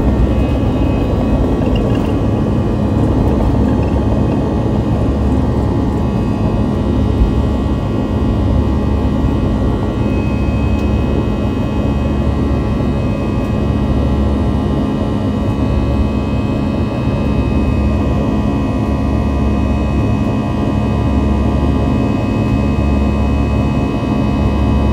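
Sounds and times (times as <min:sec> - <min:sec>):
jet engines deep rumble: 0:00.0 - 0:24.9
steady whining tones: 0:00.0 - 0:24.9.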